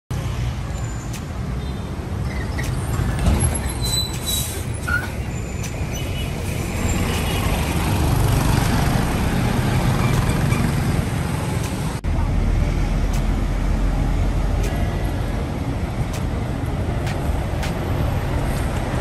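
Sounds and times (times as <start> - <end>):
bus engine rumbling: 0.1 - 19.0
motorbike traffic noise: 0.1 - 19.0
air brake hiss: 4.1 - 5.1.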